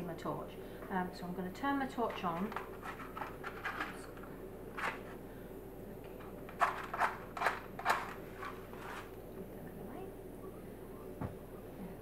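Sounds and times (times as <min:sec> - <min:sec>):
matchbox handled: 0:06.5 - 0:09.1.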